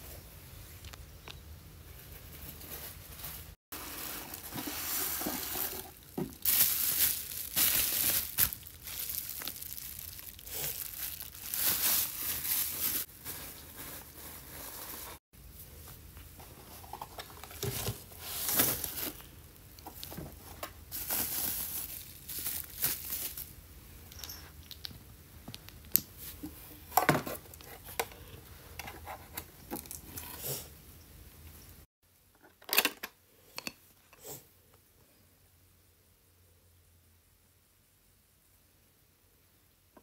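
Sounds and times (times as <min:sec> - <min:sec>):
plastic film crinkling: 0:02.8 - 0:15.2, 0:17.6 - 0:23.5.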